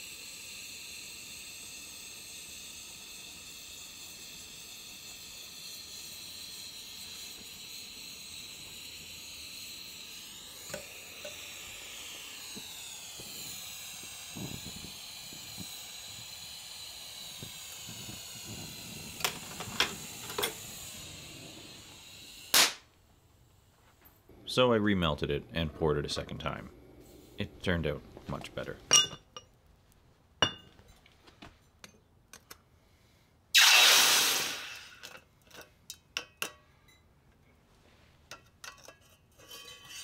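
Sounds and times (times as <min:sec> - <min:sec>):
torch flame hissing: 0:00.0 - 0:23.6, 0:26.5 - 0:28.0, 0:33.5 - 0:35.2.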